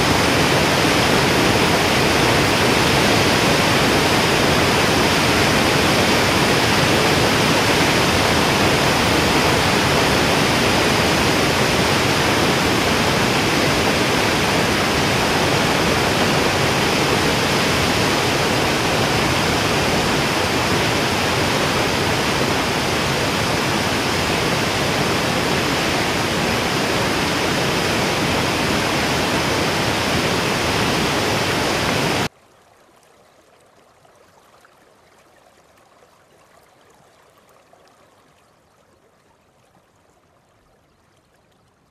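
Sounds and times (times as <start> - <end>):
running water rushing: 0.0 - 41.9.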